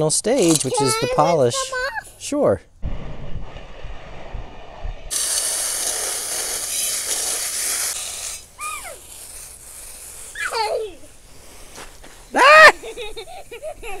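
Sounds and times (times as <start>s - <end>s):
child calling: 0.7s - 2.1s, 8.6s - 9.0s, 10.4s - 11.0s
hose nozzle spraying water: 5.1s - 14.0s.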